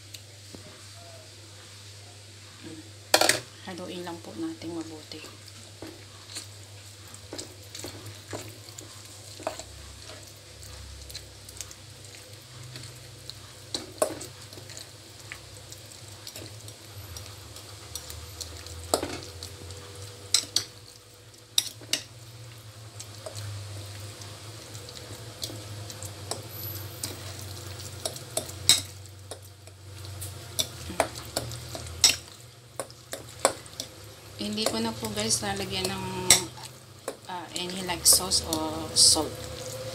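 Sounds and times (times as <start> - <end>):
spoon stirring wet mix: 4.7 - 39.9.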